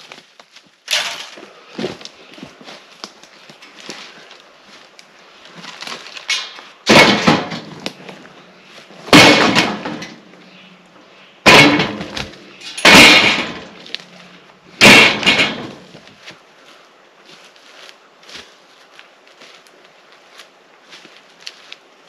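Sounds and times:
logs thudding into metal trailer: 0:00.9 - 0:02.1, 0:05.7 - 0:08.1, 0:09.0 - 0:10.6, 0:11.4 - 0:16.1.

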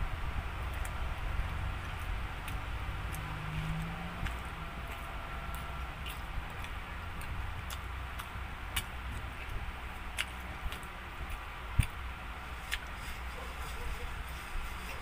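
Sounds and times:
steady low hum: 0:00.0 - 0:15.0
person chewing food: 0:00.6 - 0:01.0, 0:01.7 - 0:13.0.

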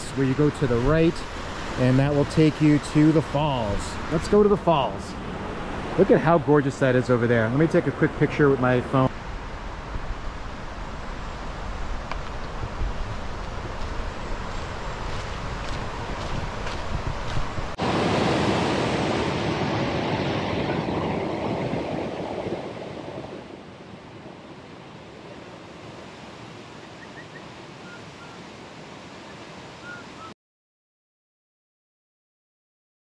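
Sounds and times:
waterfall rushing: 0:00.0 - 0:09.1, 0:17.8 - 0:21.8.

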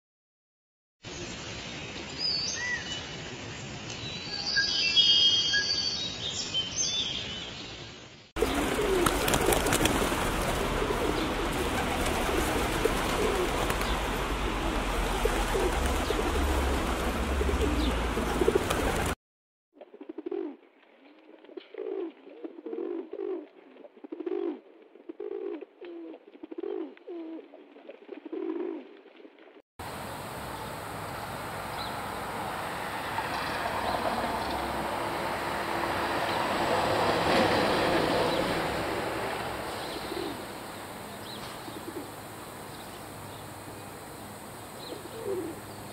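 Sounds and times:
pigeons cooing: 0:08.4 - 0:19.2, 0:20.0 - 0:20.6, 0:21.6 - 0:28.9, 0:39.8 - 0:40.5, 0:41.6 - 0:42.2, 0:44.8 - 0:45.7.

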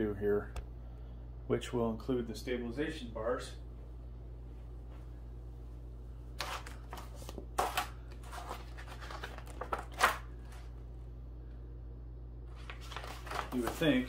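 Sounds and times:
paper rustling and crinkling: 0:06.4 - 0:10.7, 0:12.5 - 0:14.0.

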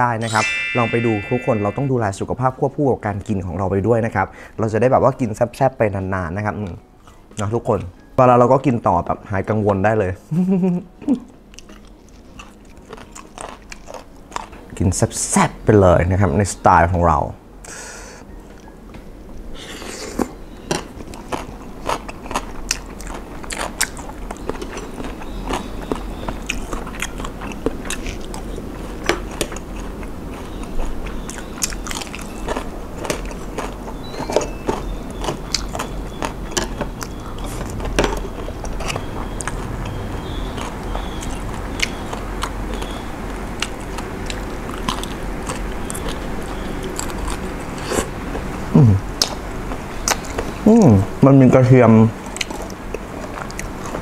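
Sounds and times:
wet chewing and biting: 0:11.5 - 0:14.6, 0:20.2 - 0:48.5, 0:50.0 - 0:50.6, 0:52.2 - 0:54.0.

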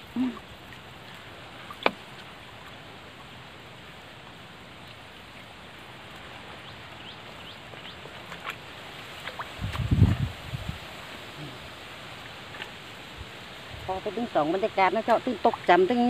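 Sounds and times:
river water rushing: 0:00.0 - 0:09.6.

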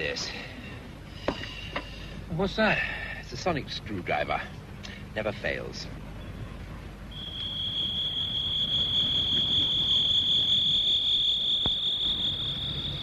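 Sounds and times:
high-pitched electronic whine: 0:07.1 - 0:13.0.

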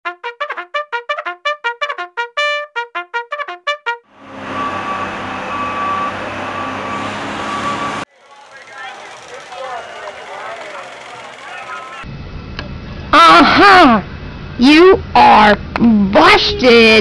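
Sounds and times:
staccato trumpet notes: 0:00.1 - 0:04.0.

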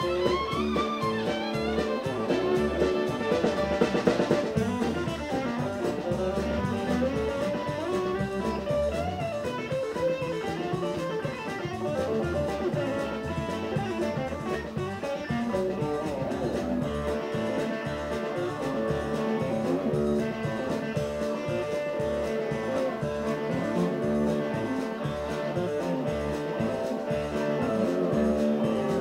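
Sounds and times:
drum kit beat: 0:00.0 - 0:29.0
fiddle: 0:00.0 - 0:29.0
guitar: 0:00.0 - 0:29.0.

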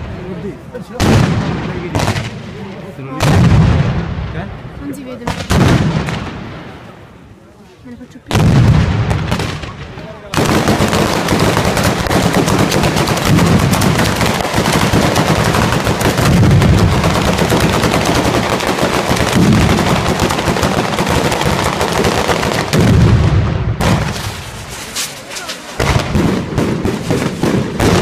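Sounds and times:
firecrackers banging rapidly: 0:00.9 - 0:02.4, 0:08.3 - 0:28.0.

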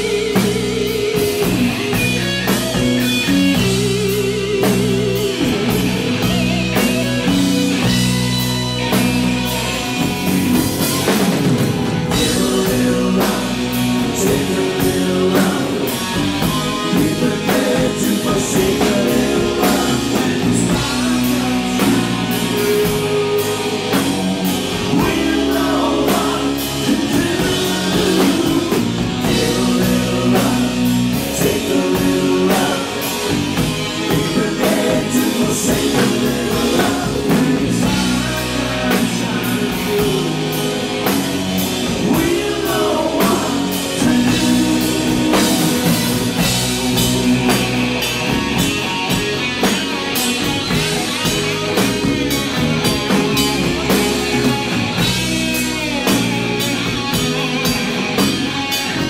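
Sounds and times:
bass guitar: 0:00.0 - 0:59.0
drum kit: 0:00.0 - 0:59.0
electric guitar: 0:00.0 - 0:59.0
man singing lead: 0:10.6 - 0:49.2.

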